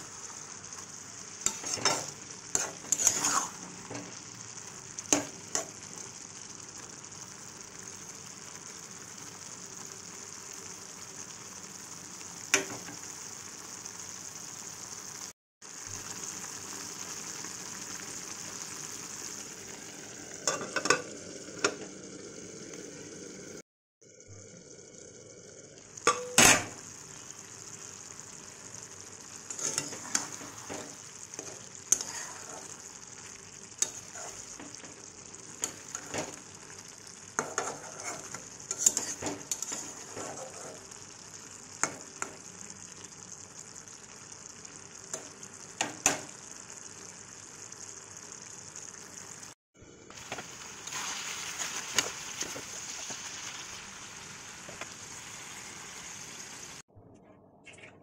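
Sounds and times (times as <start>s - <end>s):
food sizzling in a metal pan: 0.0s - 56.9s
metal spatula scraping a pan: 1.4s - 4.1s, 29.5s - 32.9s, 33.8s - 34.9s, 35.6s - 36.4s, 37.4s - 40.9s.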